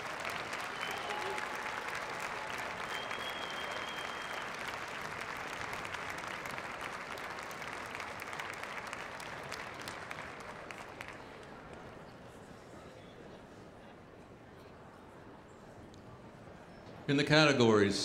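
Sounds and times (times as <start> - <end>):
audience applauding: 0.0 - 11.5.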